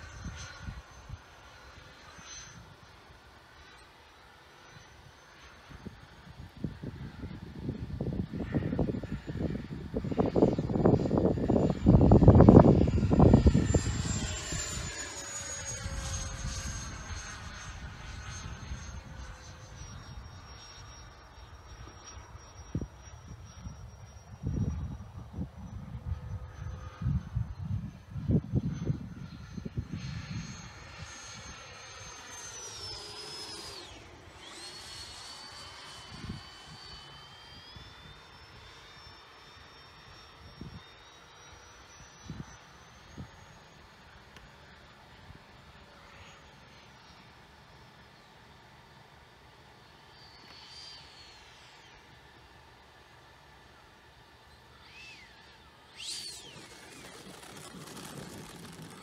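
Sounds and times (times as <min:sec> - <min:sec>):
electric jet flying by: 0:00.0 - 0:59.0
low rumbling buffets: 0:05.6 - 0:38.7, 0:54.2 - 0:59.0.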